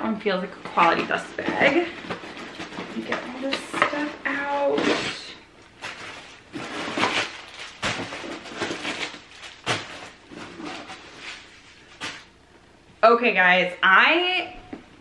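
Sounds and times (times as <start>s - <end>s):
packing paper rustling: 0.8s - 4.1s, 4.8s - 12.4s.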